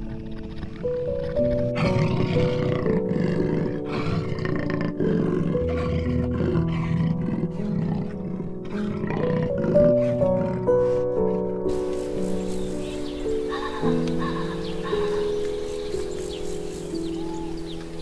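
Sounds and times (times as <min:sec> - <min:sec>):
soft background music: 0:00.0 - 0:18.0
big cat roaring: 0:00.4 - 0:11.0.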